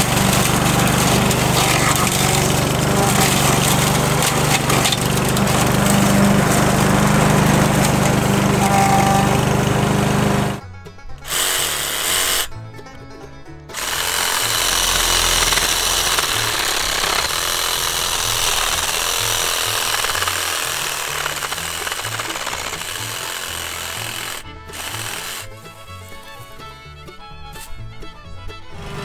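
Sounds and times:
reciprocating saw cutting branches: 0:00.0 - 0:10.6, 0:11.2 - 0:12.5, 0:13.7 - 0:26.7, 0:28.7 - 0:29.0
background music with bass line: 0:10.6 - 0:11.3, 0:12.5 - 0:13.8, 0:24.4 - 0:29.0.

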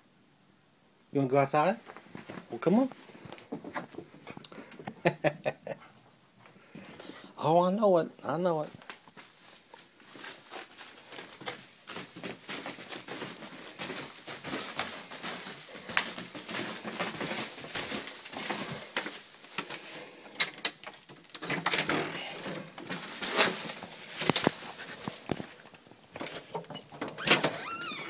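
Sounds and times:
rustling: 0:01.6 - 0:05.0, 0:08.6 - 0:28.0
footsteps: 0:01.8 - 0:04.5, 0:08.6 - 0:20.4, 0:21.9 - 0:28.0.

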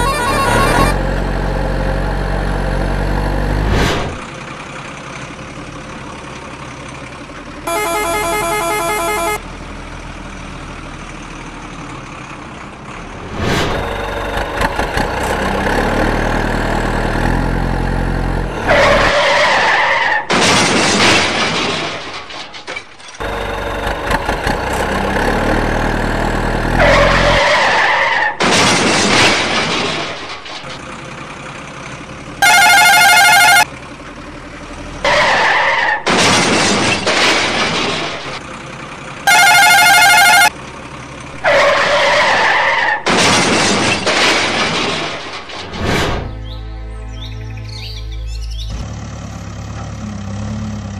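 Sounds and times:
truck horn blast: 0:00.0 - 0:01.2, 0:07.7 - 0:09.5, 0:32.4 - 0:33.7, 0:39.3 - 0:40.6
truck engine revving: 0:00.0 - 0:05.7, 0:07.5 - 0:22.0, 0:23.2 - 0:46.2, 0:48.3 - 0:50.9
tyres skidding: 0:00.0 - 0:46.6.

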